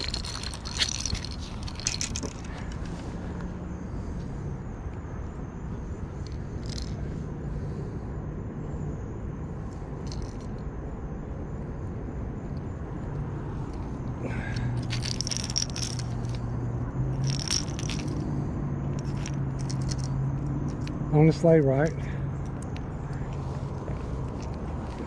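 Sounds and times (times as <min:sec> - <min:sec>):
rustling in dry grass and leaves: 0:00.0 - 0:03.3.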